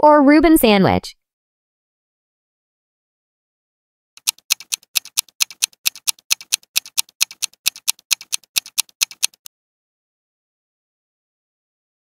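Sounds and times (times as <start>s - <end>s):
clock ticking quickly: 4.2s - 9.5s.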